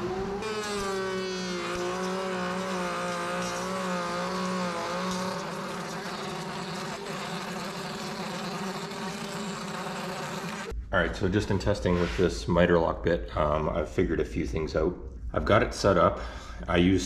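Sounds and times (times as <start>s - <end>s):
table router whining: 0.0s - 10.7s.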